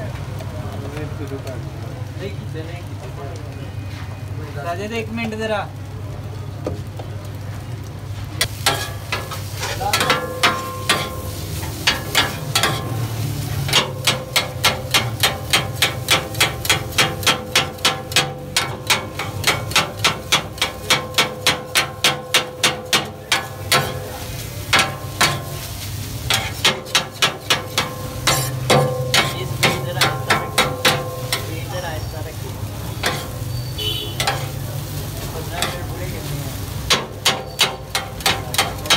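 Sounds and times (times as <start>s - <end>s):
metal utensil striking metal surface: 8.4s - 13.0s, 13.7s - 24.1s, 24.7s - 25.6s, 26.3s - 31.6s, 33.0s - 33.4s, 34.2s - 34.6s, 35.5s - 35.9s, 36.9s - 38.9s.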